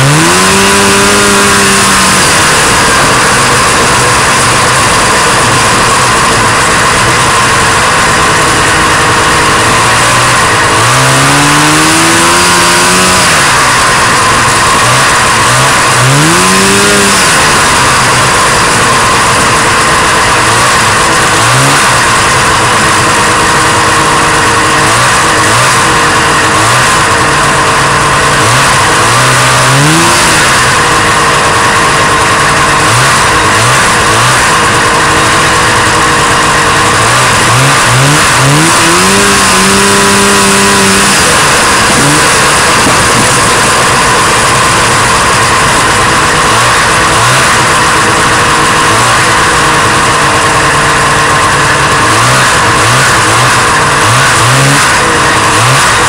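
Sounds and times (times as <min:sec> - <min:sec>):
snowmobile engine revving: 0:00.0 - 0:56.0
steady rush of noise: 0:00.0 - 0:56.0.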